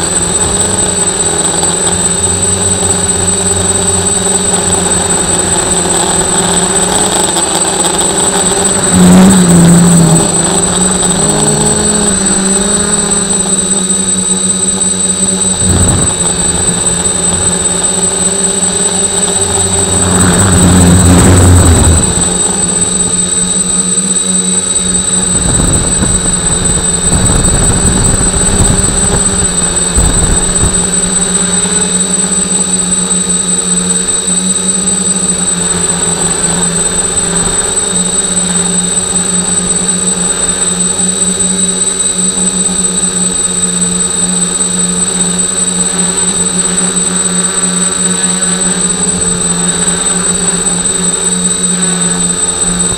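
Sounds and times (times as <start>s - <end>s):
drone propellers humming: 0.0s - 52.9s
high whine: 0.0s - 52.9s
rushing swell with rumble: 8.4s - 31.4s.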